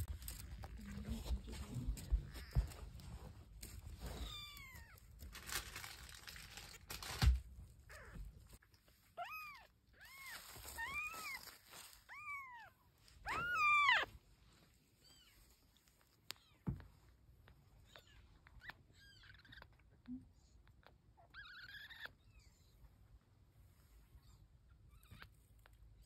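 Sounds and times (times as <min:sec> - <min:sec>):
rustling: 0:00.0 - 0:19.8
kittens mewing: 0:09.2 - 0:14.1.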